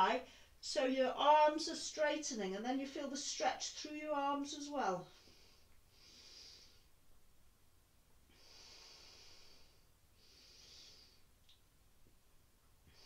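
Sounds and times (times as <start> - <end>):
woman breathing softly: 5.1 - 7.0, 8.3 - 11.4, 12.8 - 13.0.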